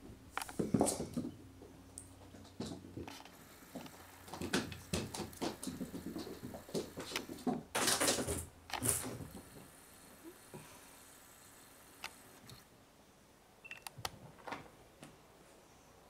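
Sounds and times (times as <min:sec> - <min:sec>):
camera handling scuffs: 0:03.1 - 0:09.7.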